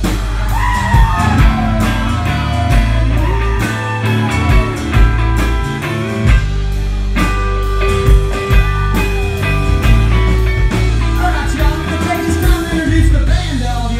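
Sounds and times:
electric guitar: 0:00.0 - 0:13.8
drum kit: 0:00.0 - 0:13.9
person singing: 0:10.2 - 0:13.9.

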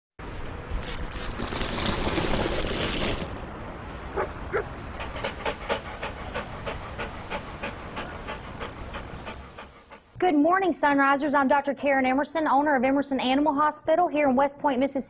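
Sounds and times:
dog panting: 0:01.0 - 0:10.2.

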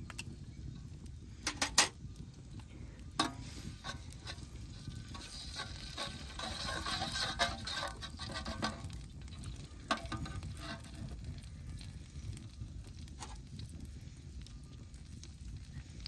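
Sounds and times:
vegetables sizzling in oil: 0:03.2 - 0:12.2.

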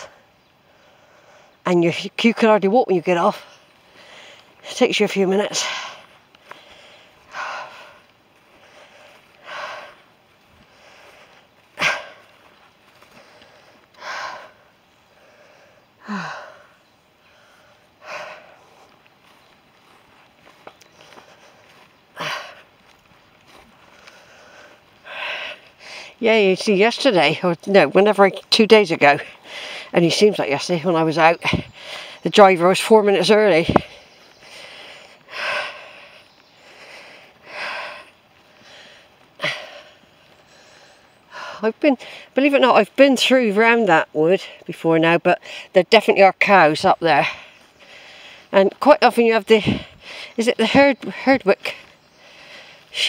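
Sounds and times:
woman breathing out heavily: 0:05.5 - 0:19.0, 0:23.5 - 0:26.2, 0:33.7 - 0:42.3.

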